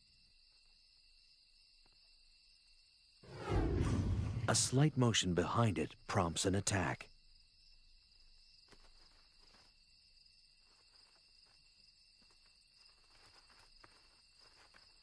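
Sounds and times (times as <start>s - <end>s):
crickets trilling: 4.7s - 15.0s.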